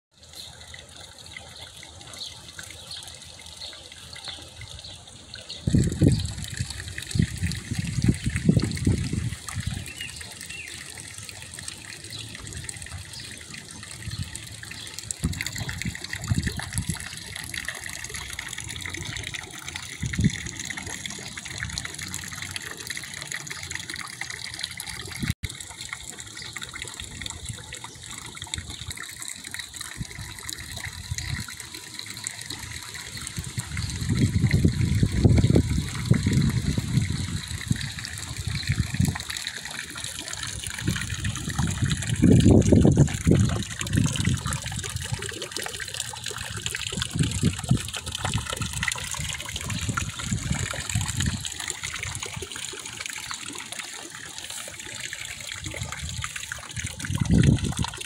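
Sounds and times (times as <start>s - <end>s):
fountain jet splashing into water: 0.2s - 58.0s.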